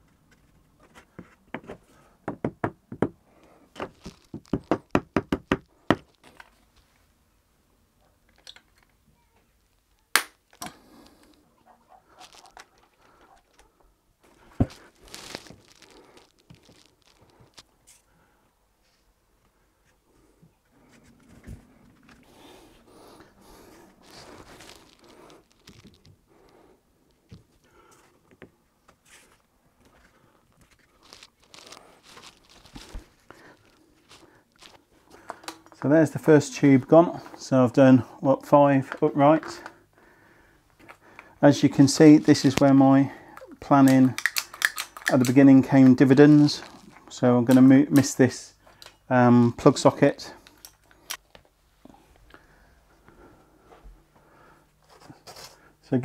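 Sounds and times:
hammer knocking on wood: 2.3s - 3.2s, 4.4s - 6.0s
rustling: 3.5s - 4.8s, 10.9s - 18.2s, 18.8s - 28.2s, 28.8s - 35.7s
shuffling steps: 11.0s - 18.1s, 18.8s - 36.0s.

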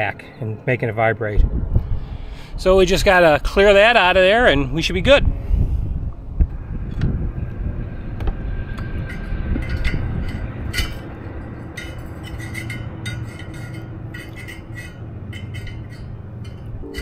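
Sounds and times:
low rumble: 1.4s - 17.0s
screwdriver scraping metal fan: 6.9s - 17.0s.

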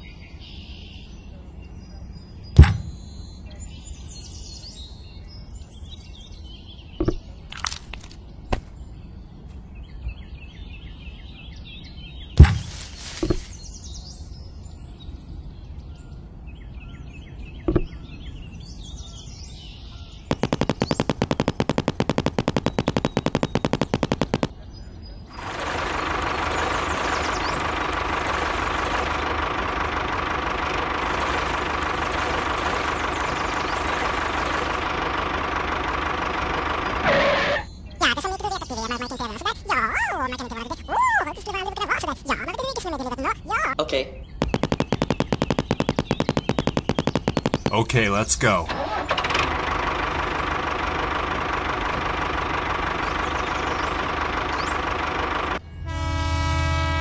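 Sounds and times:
faint bird chirps: 0.0s - 7.5s
fast even rattle: 20.3s - 24.5s, 25.4s - 43.7s, 44.4s - 55.6s
miniature tractor engine running: 20.3s - 24.5s, 25.4s - 40.8s, 44.4s - 48.0s, 48.7s - 56.1s.

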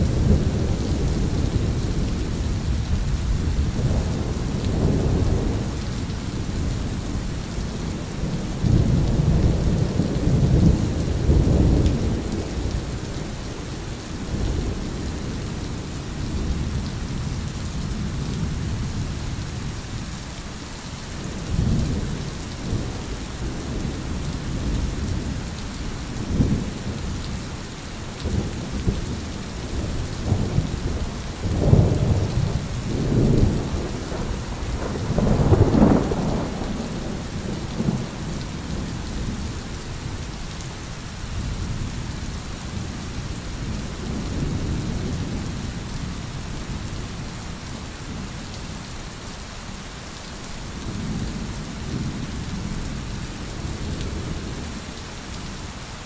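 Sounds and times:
steady rain: 0.0s - 56.0s
thunder rumbling: 28.2s - 40.0s.

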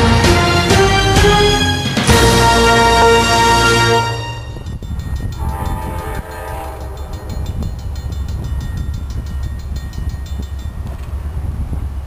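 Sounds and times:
freight train rumble: 0.0s - 12.0s
distant locomotive horn: 2.2s - 4.6s, 5.4s - 8.3s.

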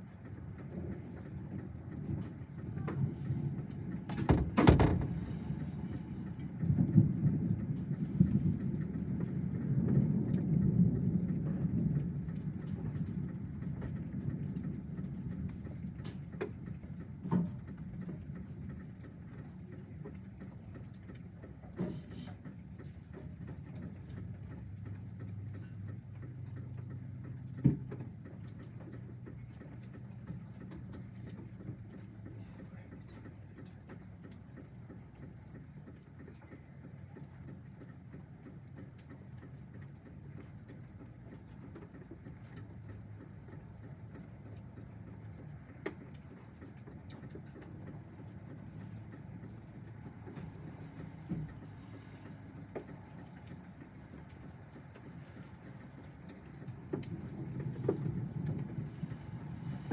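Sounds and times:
thunder rumbling: 0.0s - 20.3s, 55.9s - 59.9s
steady rain: 0.0s - 59.9s.

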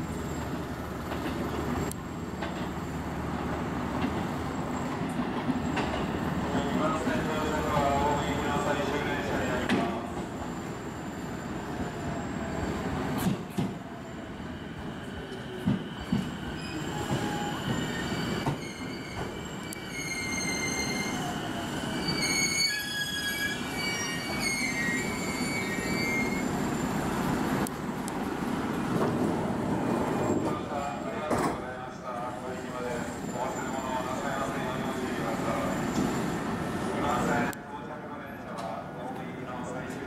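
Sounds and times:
train wheels rumbling on rails: 0.0s - 31.6s
high squealing brake tones: 16.3s - 27.0s.

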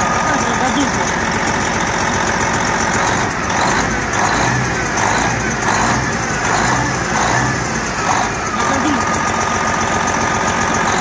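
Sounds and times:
diesel truck engine idling: 0.0s - 11.0s.

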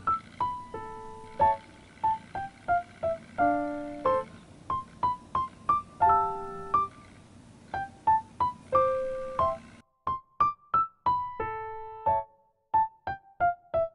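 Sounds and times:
keyboard background music: 0.0s - 13.9s.

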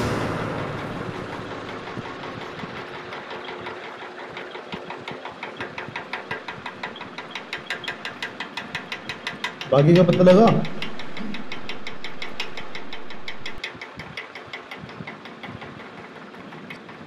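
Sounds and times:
banknotes flicked by hand: 2.4s - 15.2s.

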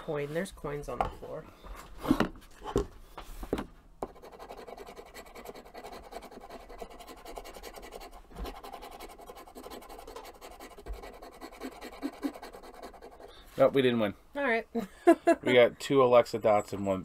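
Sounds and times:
coin scraping scratch-off card: 4.1s - 13.3s.

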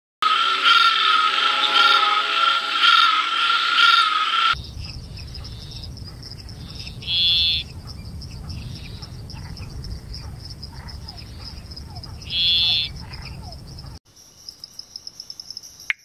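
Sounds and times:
high-pitched frog chorus: 0.2s - 16.0s
tree frog calling: 0.3s - 16.0s
small tree frog short call: 6.6s - 7.7s, 12.2s - 13.6s.

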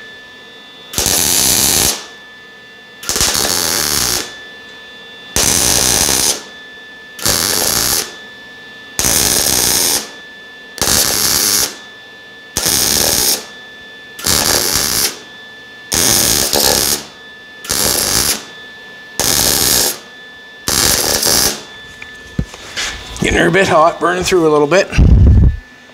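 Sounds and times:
welding arc crackling: 1.0s - 2.1s, 3.0s - 4.3s, 5.4s - 6.5s, 7.2s - 8.2s, 9.0s - 10.2s, 10.8s - 11.8s, 12.6s - 13.5s, 14.2s - 15.2s, 15.9s - 17.1s, 17.7s - 18.5s, 19.2s - 20.0s, 20.7s - 21.7s.

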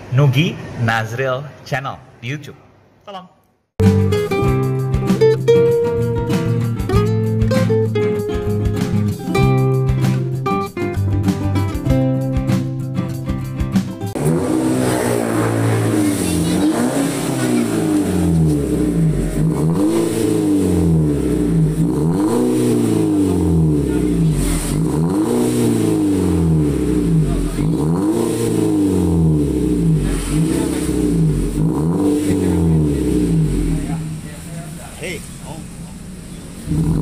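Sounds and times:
car engine revving: 14.1s - 37.0s.

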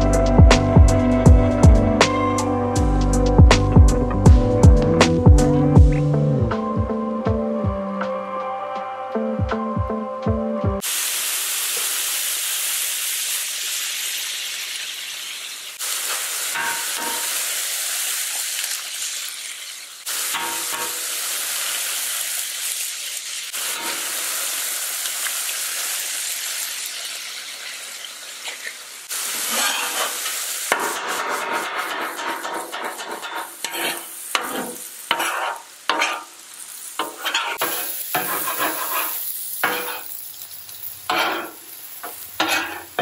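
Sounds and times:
food sizzling on griddle: 10.8s - 43.0s.

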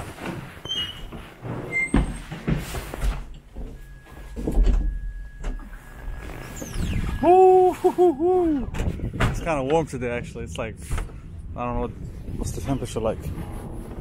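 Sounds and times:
doors opening: 0.2s - 7.3s
short squeaks and knocks: 0.6s - 2.6s.

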